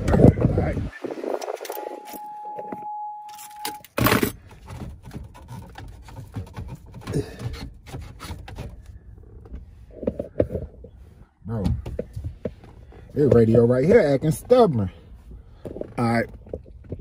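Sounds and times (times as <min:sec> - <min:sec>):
plastic handling noises: 0:01.4 - 0:11.0
steady high beep: 0:01.7 - 0:03.8.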